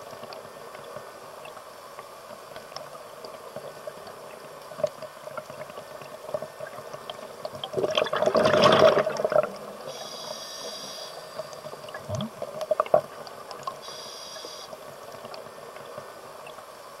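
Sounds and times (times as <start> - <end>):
faint clicks: 0.0 - 7.8, 9.4 - 16.7
exhaled bubbles underwater: 3.8 - 10.1, 11.2 - 13.8
hissing regulator inhalation: 9.8 - 11.5, 13.8 - 14.8.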